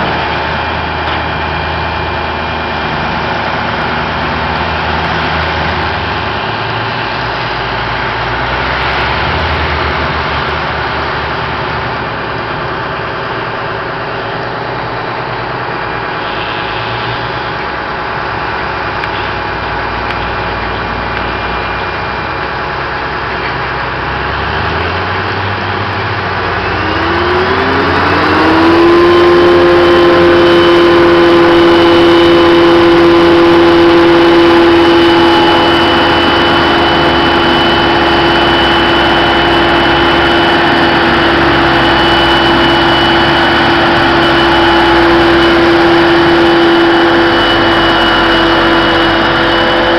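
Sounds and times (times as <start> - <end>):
heavy diesel farm machinery: 0.0 - 49.9
machinery whine climbing in pitch: 0.0 - 49.9.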